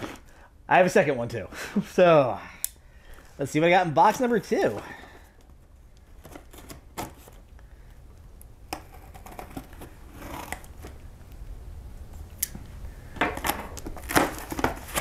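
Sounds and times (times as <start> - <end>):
knife slicing packing tape: 13.6 - 15.0.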